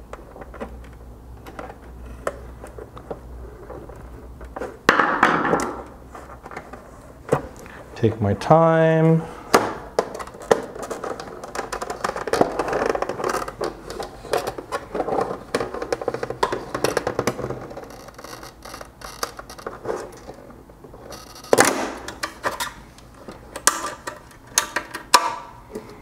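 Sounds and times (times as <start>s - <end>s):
plastic creaking and scraping: 0.0s - 4.9s, 9.9s - 25.1s.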